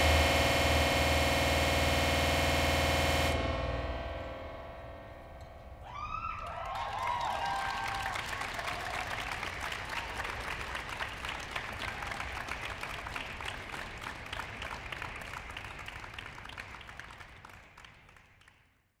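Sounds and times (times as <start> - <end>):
audience applauding: 5.9 - 18.8.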